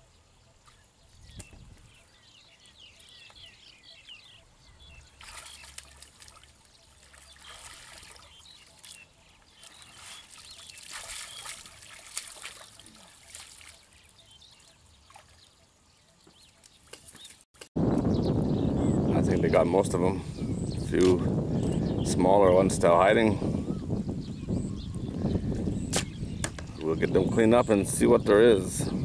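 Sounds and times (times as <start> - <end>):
muddy water splashing: 5.1 - 15.6.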